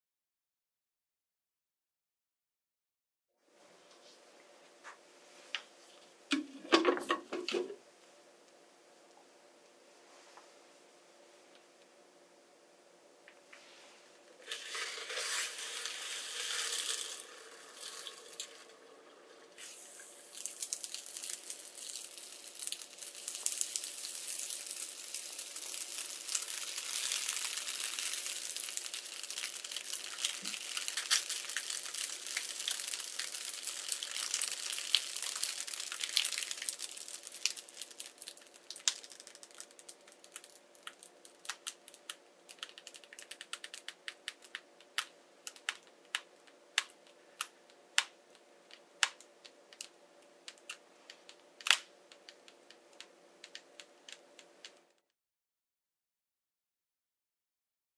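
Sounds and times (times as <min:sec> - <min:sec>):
liquid nitrogen boiling and hissing: 0:13.5 - 0:54.8
rubber balloon crackling: 0:19.5 - 0:40.3.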